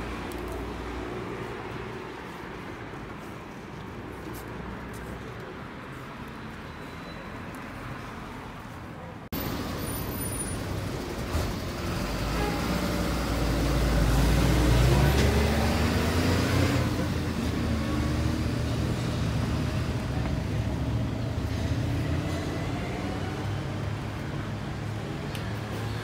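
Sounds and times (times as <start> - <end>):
background traffic noise: 0.0 - 26.0
vehicle driving past: 10.5 - 20.1.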